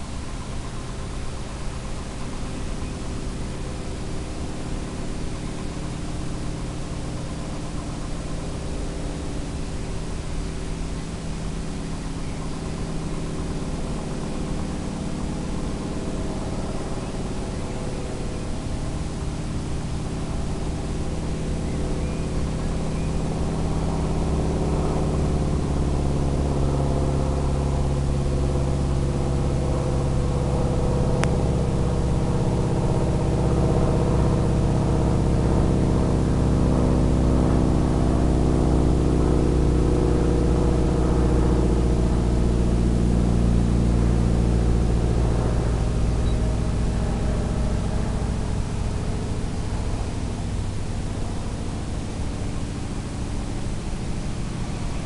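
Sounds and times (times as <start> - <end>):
drone propellers droning: 0.0 - 55.0.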